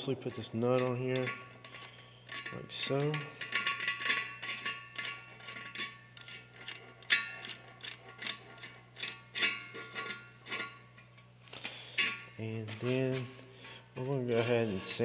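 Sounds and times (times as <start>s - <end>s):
metal nut clinking on threaded stud: 0.5s - 12.4s.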